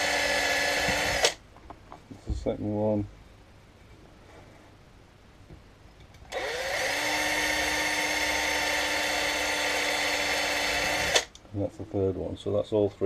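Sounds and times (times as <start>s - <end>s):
cordless drill drilling metal: 0.0s - 1.4s, 6.3s - 11.3s.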